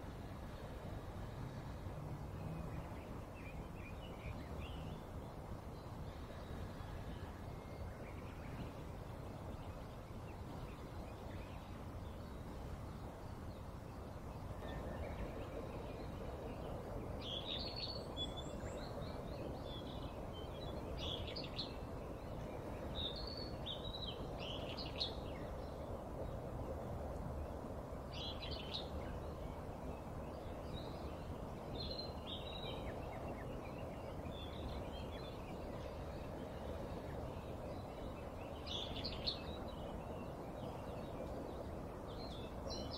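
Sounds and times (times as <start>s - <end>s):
steady background noise: 0.0s - 42.9s
small birds chirping: 28.1s - 42.9s.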